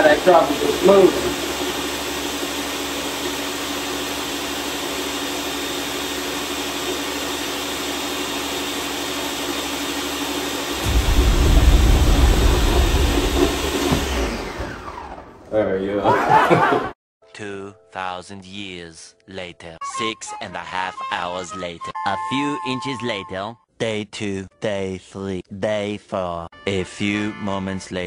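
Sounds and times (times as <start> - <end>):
blender crushing ice: 0.0 - 10.9, 12.2 - 15.4
deep rumble: 10.8 - 14.4.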